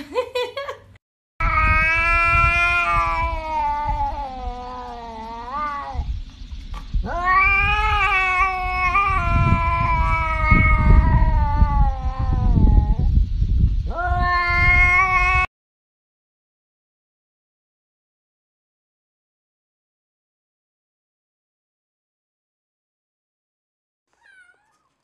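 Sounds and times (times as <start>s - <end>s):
cat yowling: 1.4s - 6.1s, 7.0s - 13.1s, 13.9s - 15.5s, 24.1s - 25.0s.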